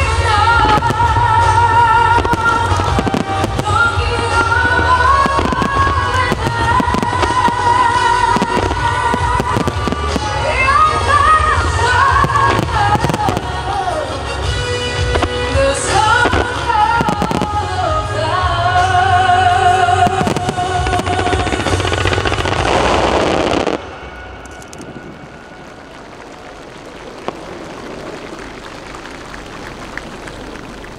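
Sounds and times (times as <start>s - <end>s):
song with singing voice: 0.0s - 24.2s
fireworks bursting: 0.0s - 30.9s.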